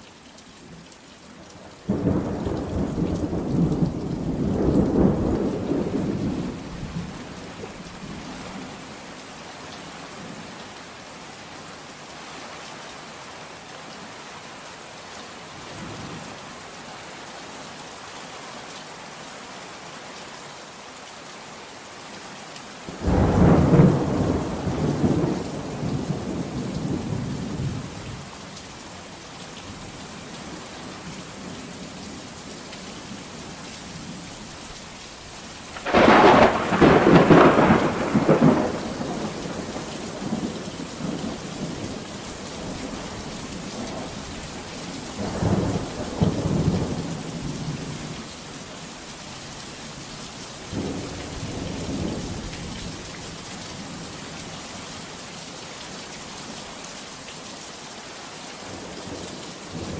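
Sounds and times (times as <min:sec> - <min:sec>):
heavy rain: 0:00.0 - 0:59.9
thunder: 0:35.8 - 0:40.4.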